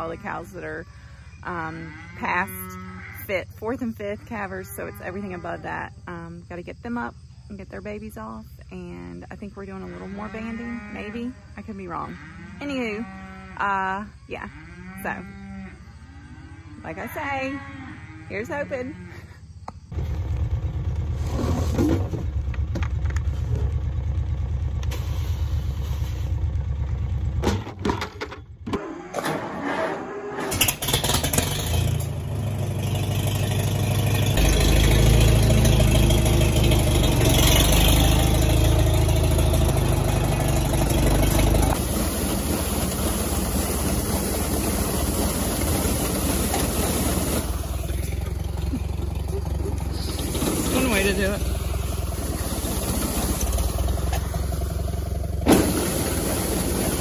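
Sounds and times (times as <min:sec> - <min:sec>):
tractor engine running: 0:19.6 - 0:28.8, 0:30.5 - 0:57.0
feed grinder grinding grain: 0:30.5 - 0:57.0.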